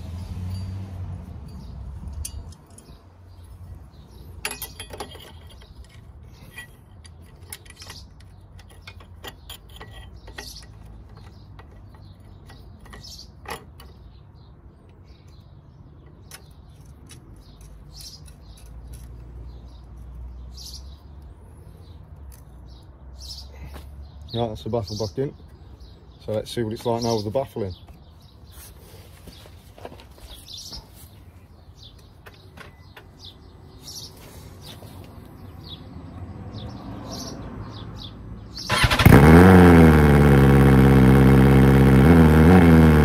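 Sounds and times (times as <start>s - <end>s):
metal clinks and scrapes: 0.4s - 14.2s, 16.1s - 20.2s.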